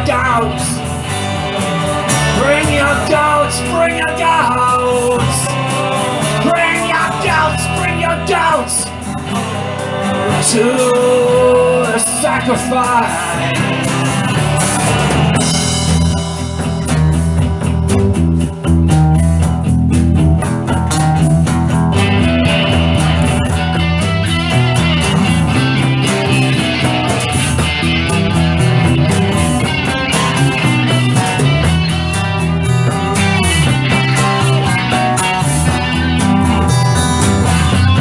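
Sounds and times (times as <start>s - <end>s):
drums: 0.0s - 38.0s
rock guitar playing: 0.0s - 38.0s
stepping bass line: 0.0s - 38.0s.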